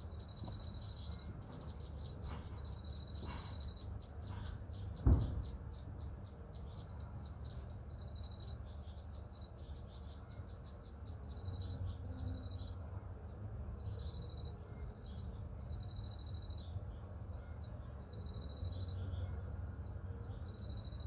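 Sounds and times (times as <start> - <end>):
insects trilling: 0.0 - 21.0
thump: 5.0 - 5.6.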